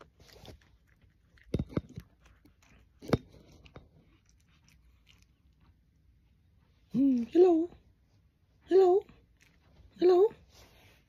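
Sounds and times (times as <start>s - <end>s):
cat chewing: 0.0s - 6.9s, 9.2s - 10.0s.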